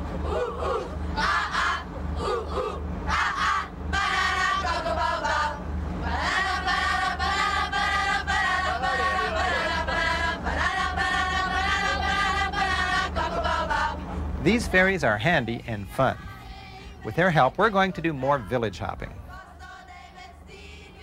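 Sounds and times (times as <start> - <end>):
children singing in chorus: 0.2 - 14.0, 19.3 - 21.0.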